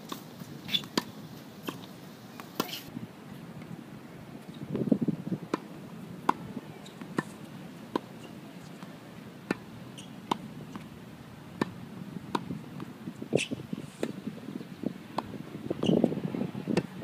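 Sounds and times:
tennis ball hit with rackets: 0:05.5 - 0:08.1, 0:08.8 - 0:10.9, 0:11.6 - 0:14.2.

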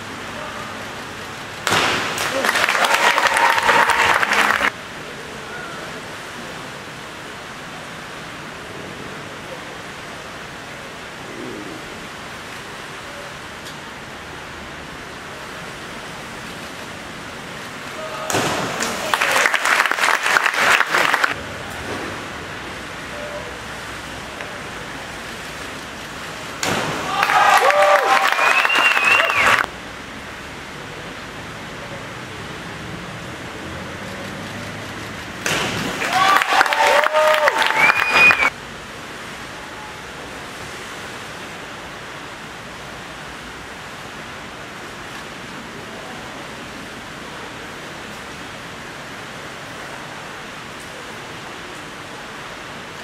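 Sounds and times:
echoing hall noise: 0:00.0 - 0:06.8, 0:17.9 - 0:25.8, 0:34.9 - 0:38.6
pool hall hiss: 0:00.0 - 0:53.0
spectators applauding: 0:02.0 - 0:04.8, 0:18.8 - 0:21.4, 0:27.1 - 0:29.7, 0:35.9 - 0:38.5.

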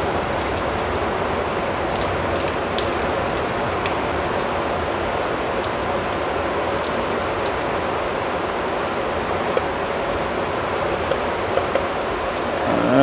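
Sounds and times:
water pouring into a sink: 0:00.0 - 0:07.5.

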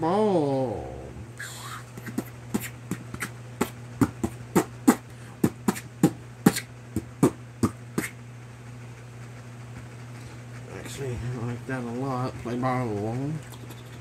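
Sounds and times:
steady low hum: 0:00.0 - 0:14.0
sharp irregular taps: 0:02.0 - 0:08.2.

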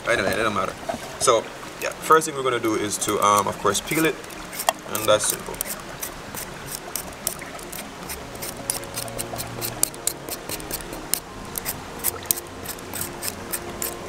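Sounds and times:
soft background music: 0:00.0 - 0:14.0
peeler scraping potato: 0:03.0 - 0:14.0.

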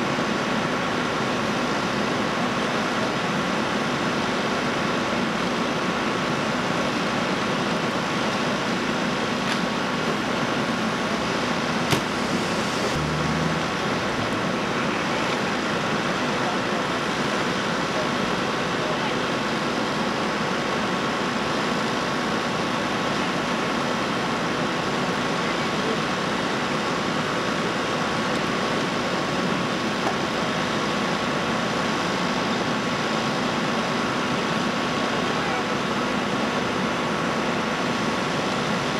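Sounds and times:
engines running: 0:00.1 - 0:38.9
engines droning: 0:10.6 - 0:17.0.

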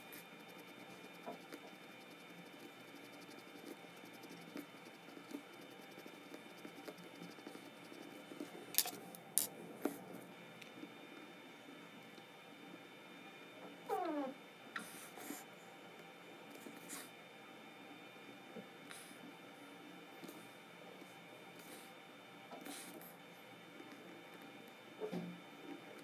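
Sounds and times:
pencil scratching on paper: 0:00.0 - 0:08.2
faint steady hum: 0:00.0 - 0:26.0.

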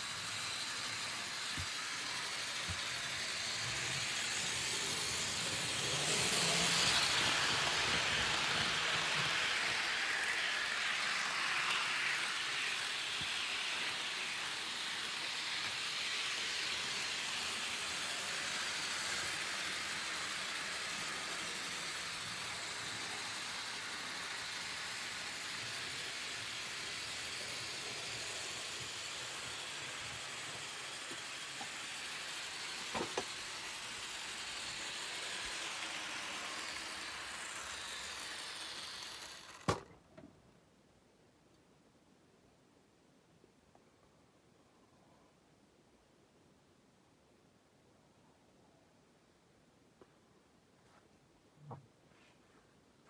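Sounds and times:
model train whirring on rails: 0:00.0 - 0:40.0.

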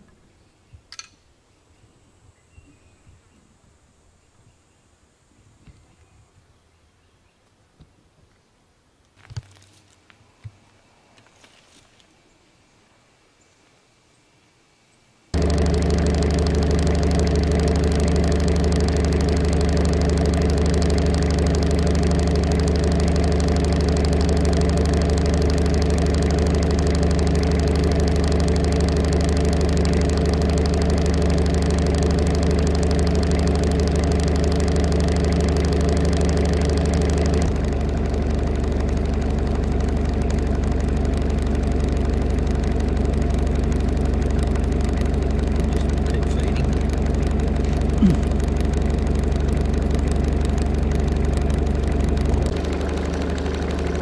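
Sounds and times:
vehicle engine idling: 0:15.4 - 0:54.0.

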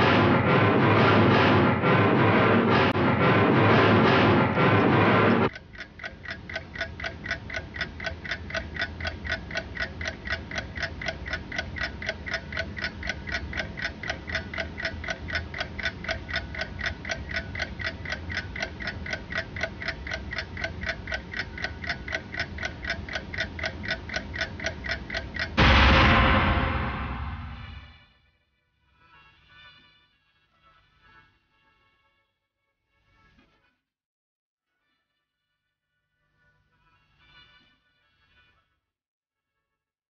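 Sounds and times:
loud music: 0:00.0 - 0:05.5, 0:25.6 - 0:27.9
fast mechanical ticking: 0:05.4 - 0:27.6.

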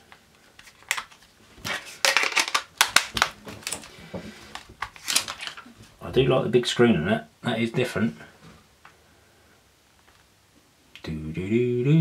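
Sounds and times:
plastic rubbing: 0:00.0 - 0:05.9.

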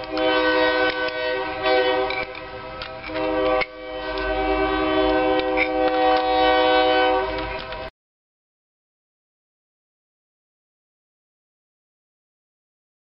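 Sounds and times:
locomotive air horn chord: 0:00.0 - 0:07.9.

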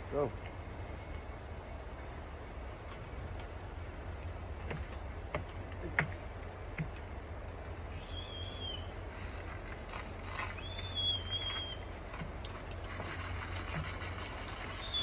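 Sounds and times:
low outdoor rumble: 0:00.0 - 0:15.0
light knocks: 0:04.6 - 0:07.1
thin high whistles: 0:07.9 - 0:09.0, 0:10.3 - 0:12.0, 0:14.4 - 0:15.0.

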